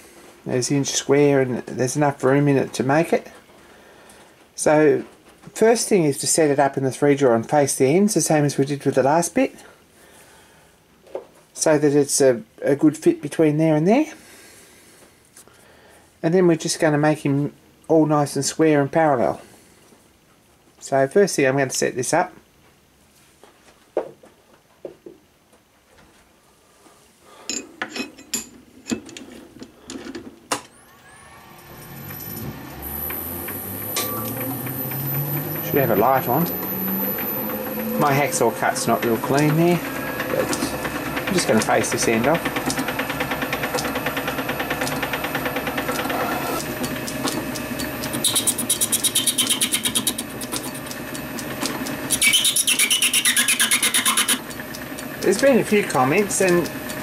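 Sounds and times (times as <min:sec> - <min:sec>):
lathe motor whine: 0:30.8 - 0:57.0
lathe running hum: 0:30.9 - 0:57.0
tool cutting brass with high rasp: 0:32.2 - 0:43.5, 0:47.4 - 0:50.9, 0:52.1 - 0:54.6.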